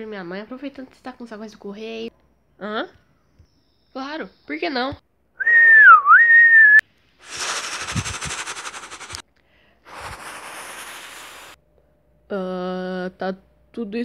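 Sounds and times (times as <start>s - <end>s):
person whistling high note: 5.4s - 6.8s
hissing like steam: 7.2s - 9.2s, 9.9s - 11.6s.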